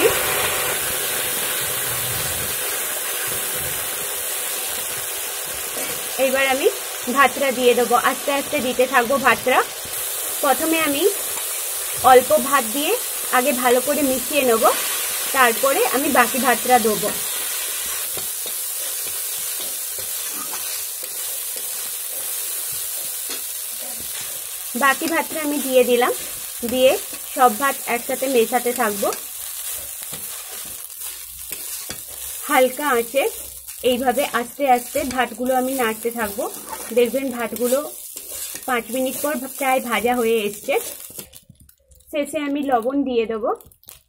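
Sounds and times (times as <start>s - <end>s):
hot oil hissing and sizzling: 0.0s - 41.4s
metal spatula scraping a wok: 16.8s - 27.3s, 28.8s - 32.4s, 34.8s - 39.6s.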